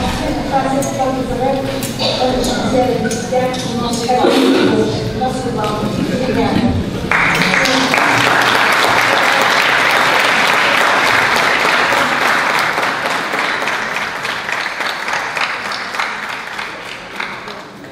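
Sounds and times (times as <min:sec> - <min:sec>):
audience applauding: 0:07.0 - 0:17.9.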